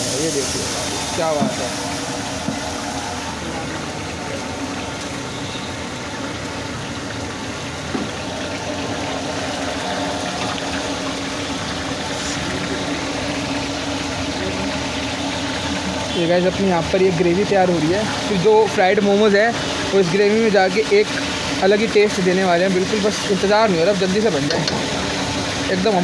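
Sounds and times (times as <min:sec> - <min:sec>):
gas burner noise: 0:00.0 - 0:26.0
vegetables sizzling in a wok: 0:00.0 - 0:26.0.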